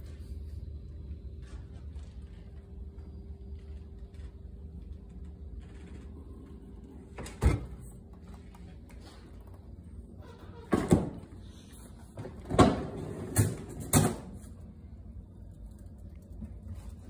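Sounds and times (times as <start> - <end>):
freezer drawer clunks and rattles: 7.1 - 7.9, 10.6 - 11.3, 12.1 - 14.5.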